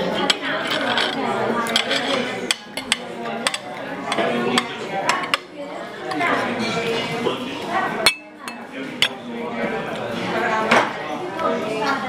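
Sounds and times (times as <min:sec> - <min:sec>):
cutlery clinking against plates: 0:00.1 - 0:07.3, 0:08.0 - 0:09.3.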